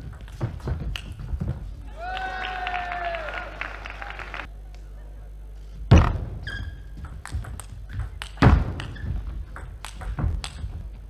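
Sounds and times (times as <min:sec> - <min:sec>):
shoe squeaks on floor: 0:06.4 - 0:07.0, 0:08.8 - 0:09.4
table tennis ball clicking: 0:07.0 - 0:09.0, 0:09.6 - 0:10.7.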